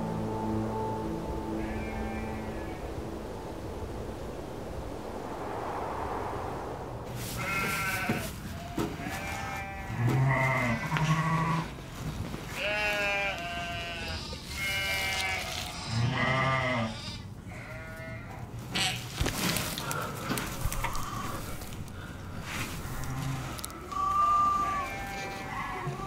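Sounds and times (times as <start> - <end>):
sheep bleating: 1.5 - 2.8, 7.4 - 11.7, 12.5 - 19.1, 22.9 - 26.0.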